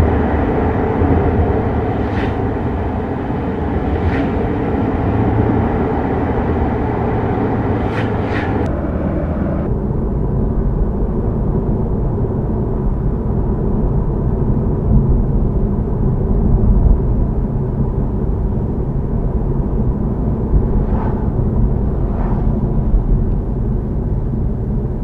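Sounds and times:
car interior road rumble: 0.0 - 25.0.

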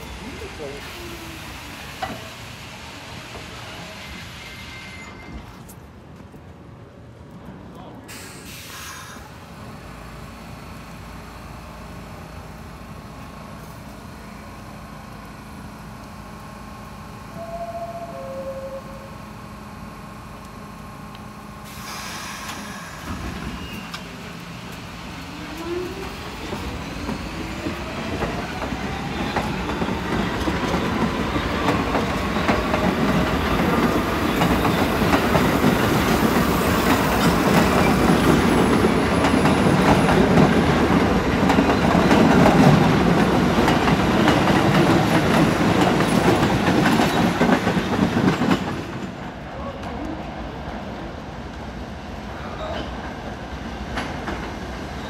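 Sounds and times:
air hiss: 8.1 - 9.3, 21.6 - 23.2
train wheel clatter: 26.4 - 49.2.

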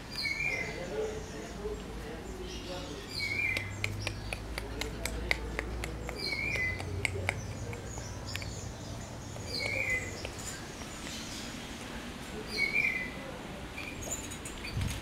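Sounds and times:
bird chirping: 0.0 - 11.8, 12.5 - 14.9
sharp clicks and taps: 3.4 - 11.2.

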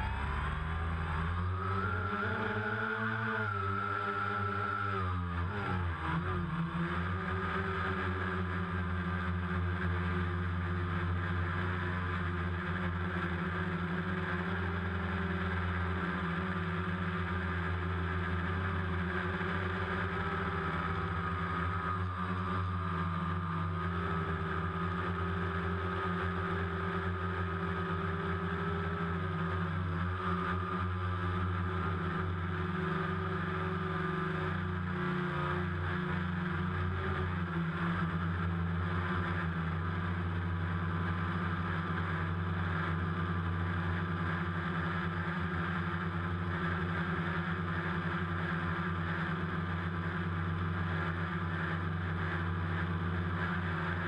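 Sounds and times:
drone propellers whirring: 0.0 - 8.4.

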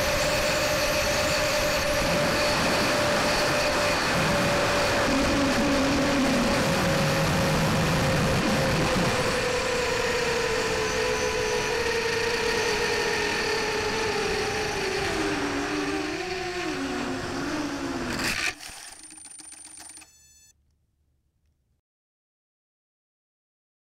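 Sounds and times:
electric motor and propeller whining: 0.0 - 20.5.

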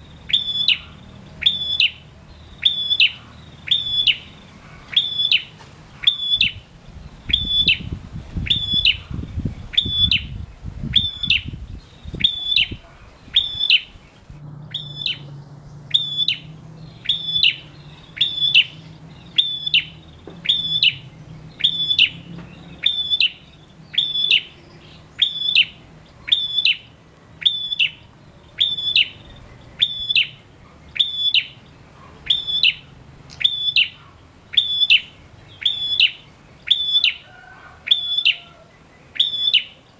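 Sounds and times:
bird singing sharp high call: 0.0 - 6.6, 7.2 - 39.9.

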